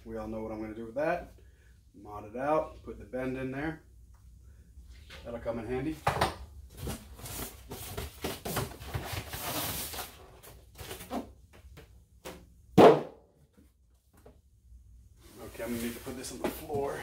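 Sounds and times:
loud thump: 12.8 - 13.2.

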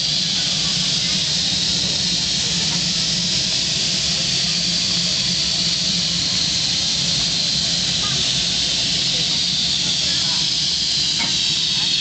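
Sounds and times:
steam engine hissing: 0.0 - 12.0.

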